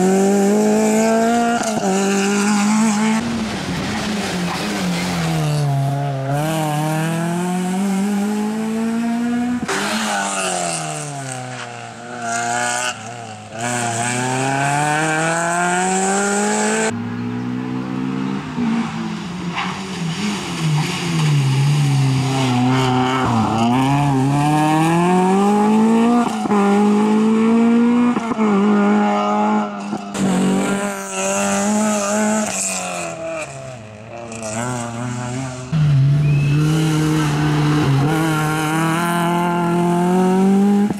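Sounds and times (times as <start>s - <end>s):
rally car engine revving hard: 0.0s - 16.9s, 20.1s - 40.9s.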